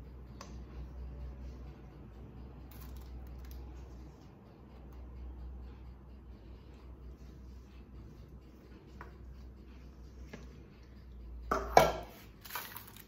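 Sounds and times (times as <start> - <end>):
low steady hum: 0.0 - 13.0
spatula knocking on metal bowl: 11.5 - 12.1.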